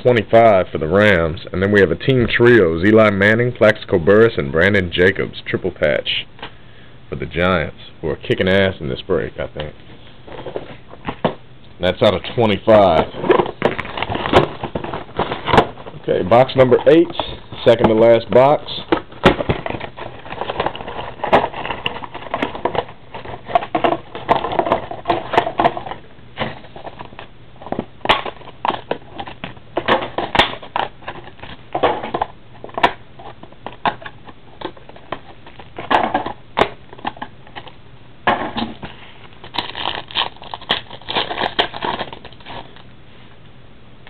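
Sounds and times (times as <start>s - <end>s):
wrappers and cardboard rustling: 11.9s - 42.9s.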